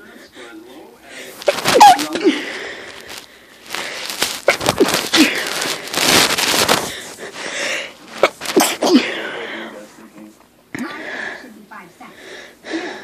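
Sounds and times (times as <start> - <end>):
catches of breath: 0.0 - 9.9, 10.8 - 13.0
person sneezing: 1.4 - 2.6, 8.2 - 9.3.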